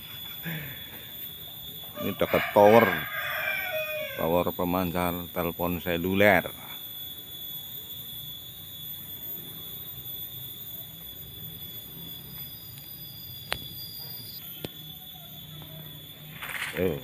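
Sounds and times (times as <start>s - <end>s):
high-pitched whine: 0.0s - 17.0s.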